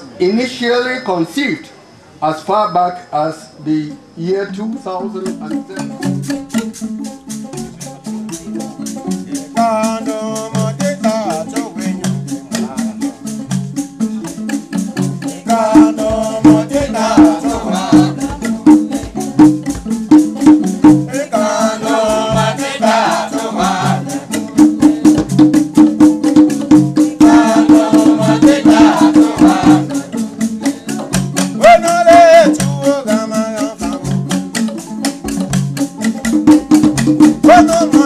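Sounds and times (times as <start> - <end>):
fast shaker rhythm: 4.4 - 38.0
person singing: 9.6 - 12.7, 15.2 - 19.4, 21.1 - 25.3, 27.0 - 34.2, 37.4 - 38.0.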